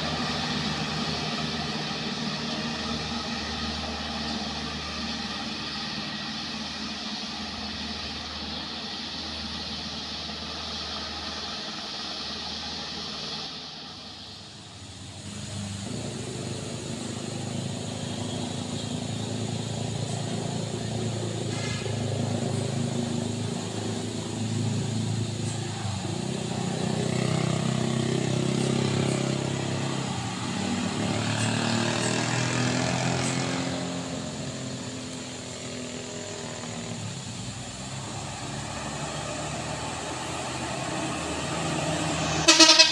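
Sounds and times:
diesel truck approaching: 0.0s - 42.9s
diesel truck engines labouring uphill: 0.0s - 42.9s.

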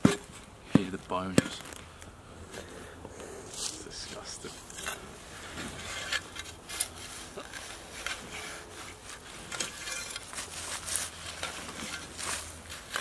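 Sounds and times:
spade scraping into soil: 4.5s - 13.0s.

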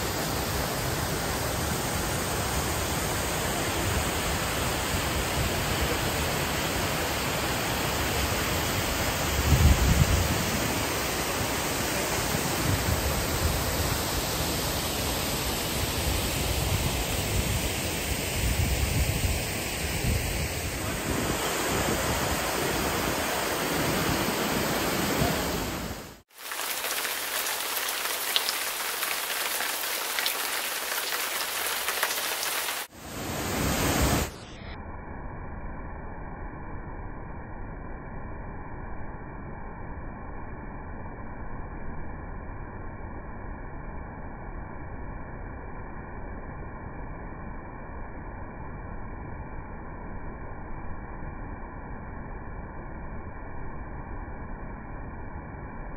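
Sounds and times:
waterfall rushing: 26.3s - 34.3s.

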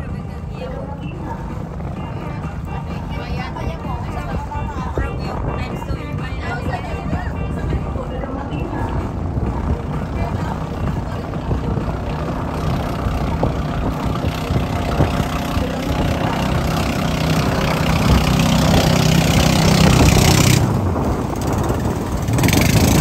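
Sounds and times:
boat engine running: 0.0s - 23.0s
water rushing and splashing: 0.0s - 23.0s
wind on microphone: 0.0s - 23.0s.

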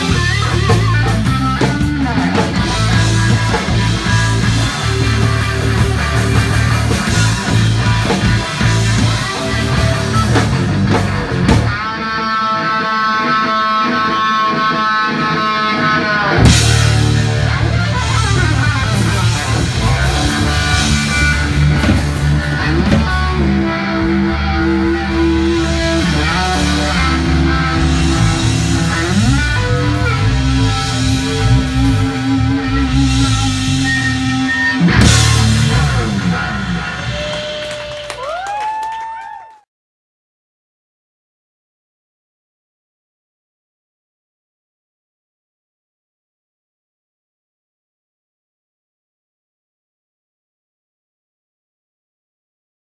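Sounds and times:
electric guitar lead: 0.0s - 38.6s
drum kit: 0.0s - 39.2s
bass guitar: 0.0s - 39.4s.

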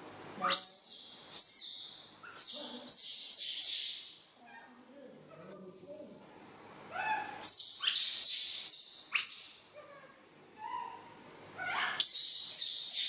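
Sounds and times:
young monkey screaming: 0.4s - 4.7s, 6.9s - 13.0s.

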